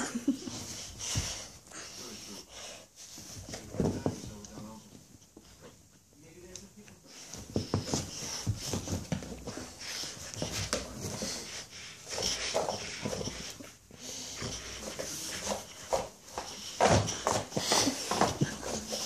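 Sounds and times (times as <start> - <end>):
dog breathing noisily: 0.5 - 3.8, 7.1 - 19.0.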